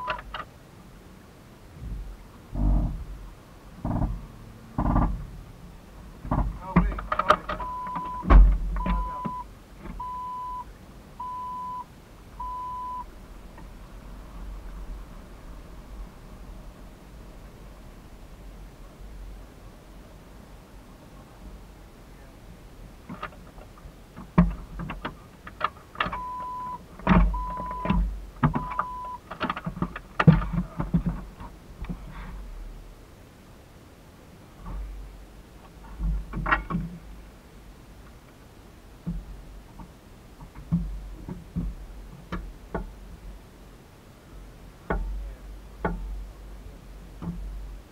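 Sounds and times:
electronic beeps: 0:00.0 - 0:00.2, 0:07.6 - 0:13.1, 0:26.2 - 0:28.0, 0:28.6 - 0:29.2
low rumble: 0:01.6 - 0:06.8
knocks and thumps: 0:03.8 - 0:05.3, 0:06.2 - 0:10.0, 0:24.2 - 0:26.2, 0:29.4 - 0:32.3, 0:39.0 - 0:43.0.

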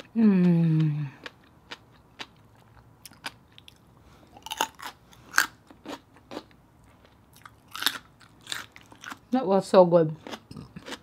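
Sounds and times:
crunchy chewing of radish: 0:00.0 - 0:09.3, 0:10.2 - 0:11.0.

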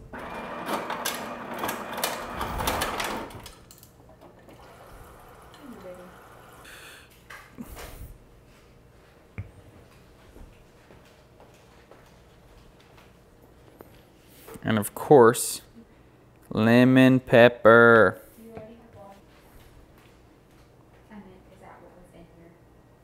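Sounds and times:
kitchen items rattling and clicking: 0:00.5 - 0:04.7.

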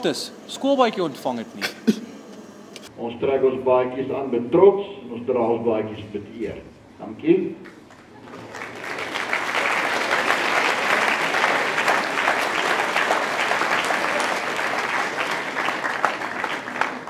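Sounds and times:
audience applauding: 0:07.7 - 0:17.0.

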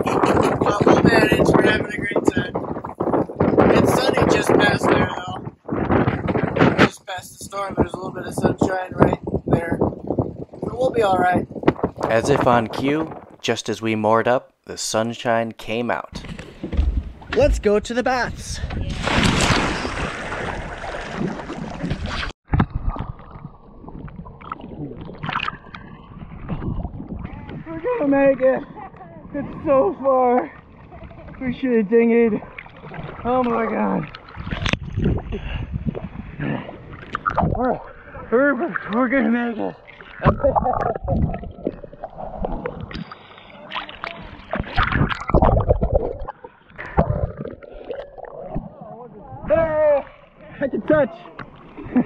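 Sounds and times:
water sloshing and lapping: 0:16.1 - 0:17.8, 0:18.5 - 0:52.0
water splashing: 0:16.1 - 0:52.0.

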